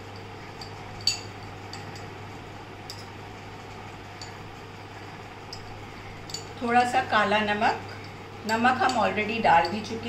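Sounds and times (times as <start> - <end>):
spoon clinking against glass bowl: 5.5 - 6.9, 7.8 - 10.0.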